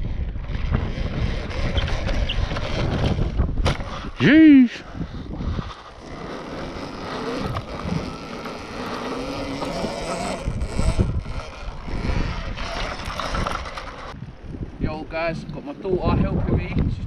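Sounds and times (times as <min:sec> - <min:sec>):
wind buffeting microphone: 0:00.0 - 0:17.0
faint electric motor whine: 0:05.7 - 0:14.2.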